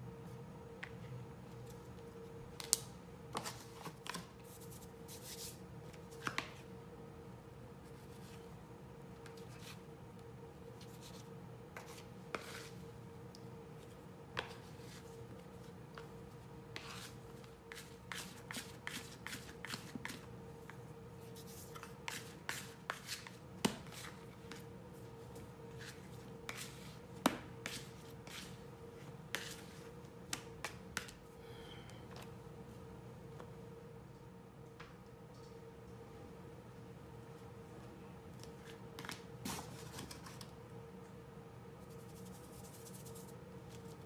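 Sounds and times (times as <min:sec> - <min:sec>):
faint steady hum: 0:00.0 - 0:44.0
hands working dough: 0:07.8 - 0:31.3.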